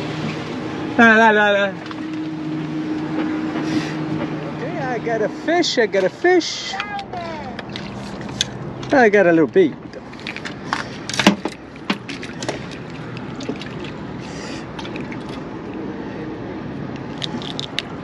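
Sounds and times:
fishing boat engine rumble: 0.0 - 18.0.

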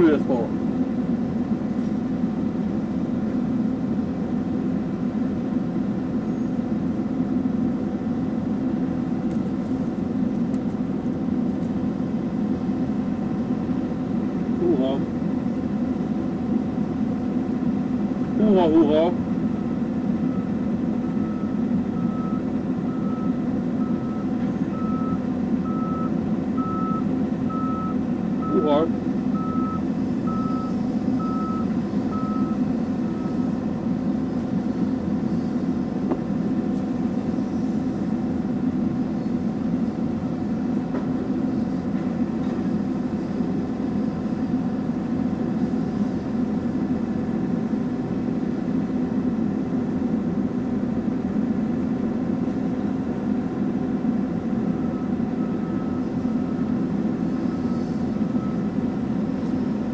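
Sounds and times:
diesel engine running: 0.0 - 59.9
reversing alarm beeping: 19.5 - 33.7, 54.7 - 59.0.

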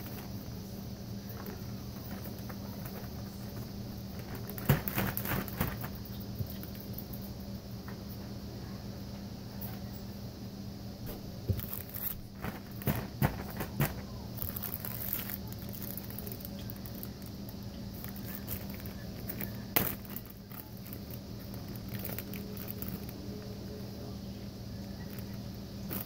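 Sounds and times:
plastic bags crinkling: 1.3 - 6.8, 11.5 - 23.8, 25.0 - 26.0.

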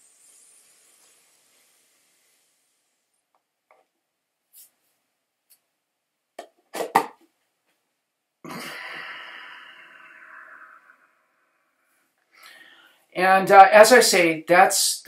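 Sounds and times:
man coughing: 8.5 - 8.9
long breath out: 8.5 - 13.1.

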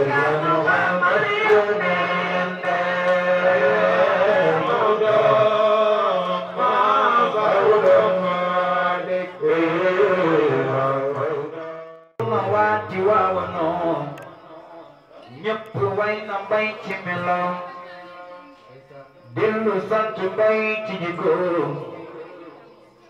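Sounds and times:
lead voice singing: 0.0 - 17.7
men chanting into microphones: 0.0 - 17.8, 19.3 - 22.4.

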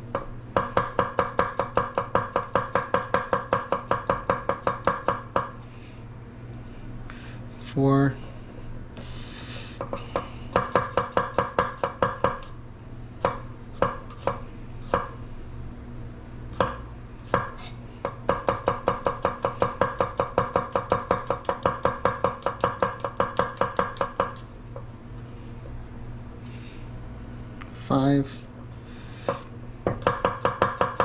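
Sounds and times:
knife chopping on wooden board: 0.1 - 5.6, 9.8 - 12.5, 13.2 - 15.1, 16.5 - 24.8, 29.2 - 31.0.

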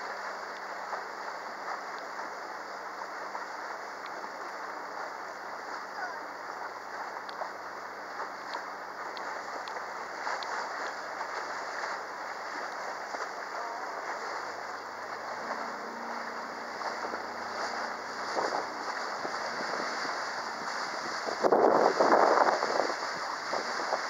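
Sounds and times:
water rushing past hull: 0.0 - 24.0
boat motor running: 10.9 - 24.0
wind buffeting microphone: 12.5 - 24.0.

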